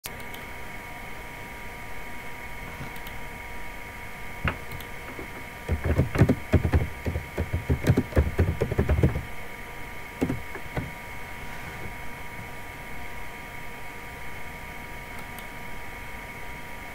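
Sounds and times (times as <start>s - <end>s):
keyboard typing clicks: 4.5s - 9.3s, 10.2s - 10.9s.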